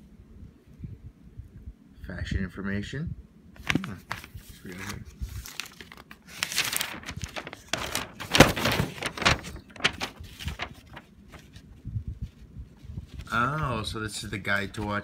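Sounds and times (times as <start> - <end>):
paper rustling and crinkling: 3.6 - 15.0.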